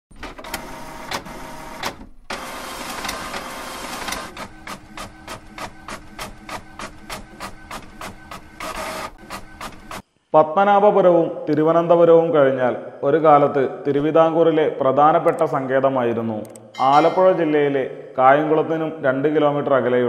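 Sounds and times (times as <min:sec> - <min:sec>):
typewriter typing: 0:00.1 - 0:10.0.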